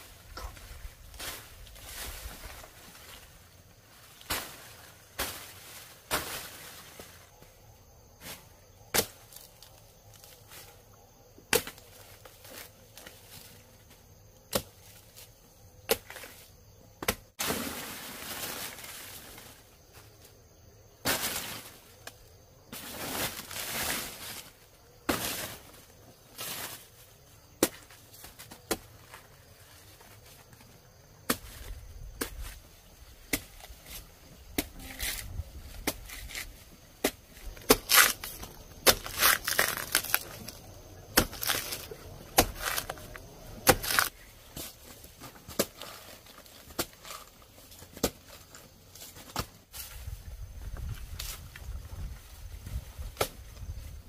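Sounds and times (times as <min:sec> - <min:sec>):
rustling and scraping: 0:00.0 - 0:08.7, 0:22.7 - 0:54.0
blade chopping plant stalks: 0:04.1 - 0:07.1, 0:08.2 - 0:09.6, 0:11.5 - 0:13.5, 0:14.4 - 0:15.2, 0:15.9 - 0:16.4, 0:17.0 - 0:19.0, 0:27.5 - 0:29.3, 0:31.2 - 0:49.9, 0:53.0 - 0:53.5.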